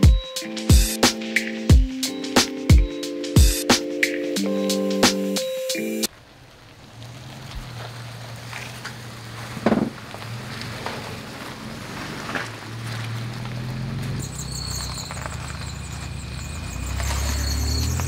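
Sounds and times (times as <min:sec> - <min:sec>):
engines running at low revs: 0:06.1 - 0:18.0.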